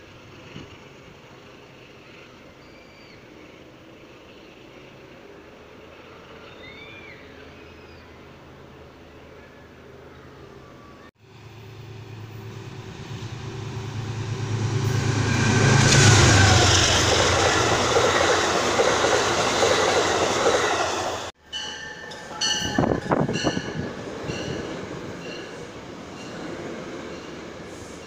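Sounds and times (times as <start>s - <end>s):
train wheels rushing on rail: 11.3s - 21.4s.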